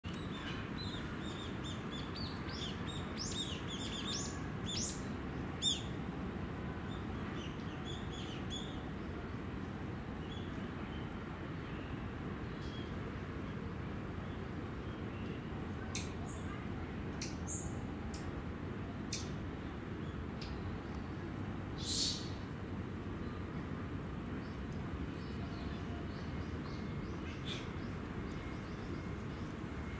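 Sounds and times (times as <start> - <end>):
small birds chirping: 0.1 - 6.0, 14.2 - 16.6, 17.2 - 18.3, 19.0 - 19.4, 21.8 - 22.5.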